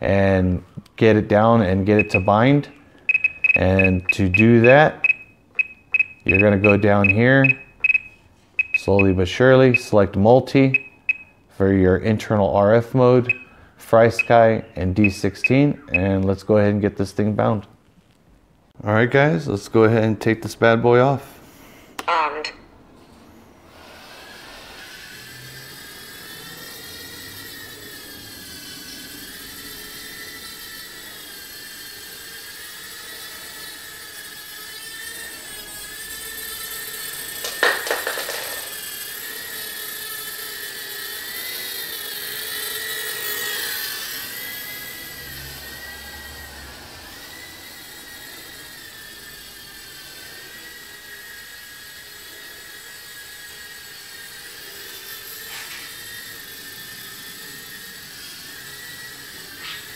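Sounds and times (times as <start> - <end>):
quadcopter propeller whine: 0.0 - 16.9, 23.1 - 59.9
clatter of sharp knocks: 37.4 - 38.7.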